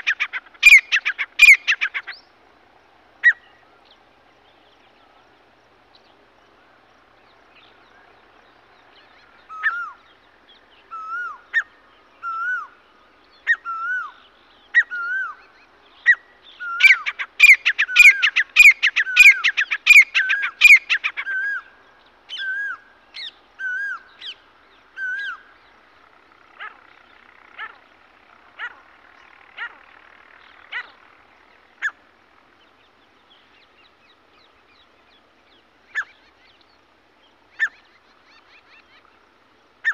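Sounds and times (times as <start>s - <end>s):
bird calling: 0.0s - 2.3s, 3.2s - 3.8s, 9.0s - 10.2s, 10.8s - 35.2s, 35.9s - 36.7s, 37.5s - 39.2s.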